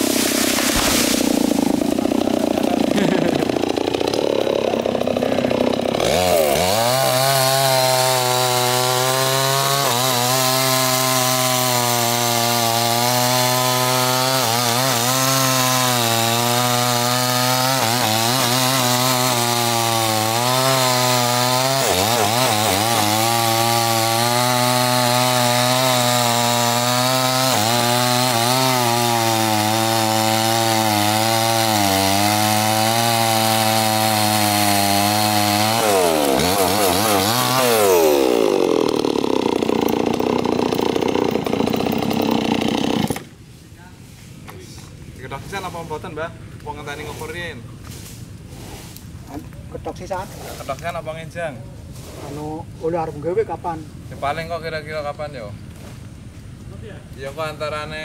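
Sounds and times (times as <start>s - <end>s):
chainsaw running: 0.0s - 43.4s.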